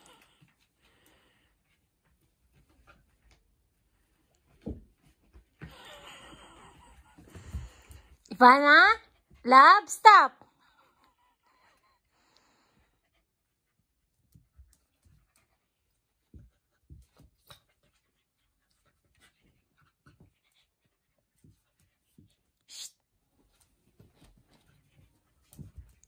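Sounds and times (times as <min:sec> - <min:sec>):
dog panting: 0:10.6 - 0:22.5.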